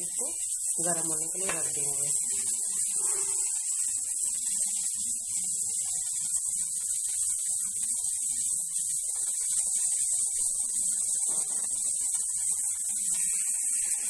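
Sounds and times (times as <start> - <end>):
steady hiss: 0.0 - 14.0
low wavering hum: 2.2 - 3.6.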